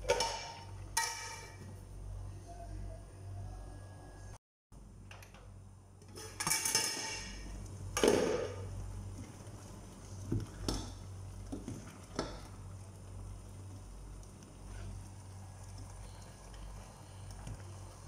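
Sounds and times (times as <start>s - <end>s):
low hum: 0.8s - 4.9s.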